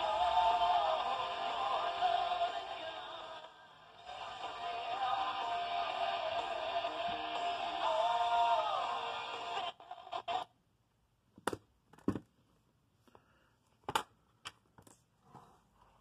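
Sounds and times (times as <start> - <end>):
music from portable speakers: 0.0 - 10.4.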